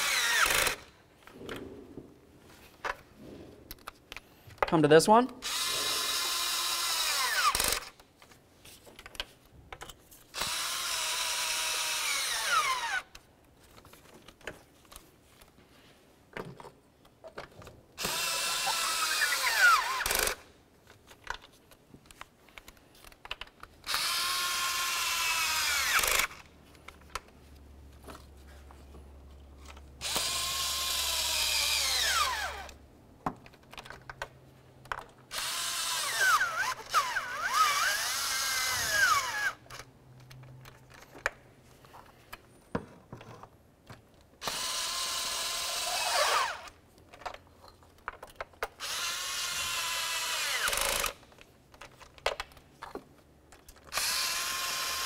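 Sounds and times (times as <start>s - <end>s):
electric ratchet whining: 0.0s - 0.9s, 5.4s - 8.0s, 10.4s - 13.1s, 23.9s - 26.4s, 30.0s - 32.8s, 35.3s - 39.8s, 44.4s - 46.7s, 48.8s - 51.2s, 53.9s - 55.0s.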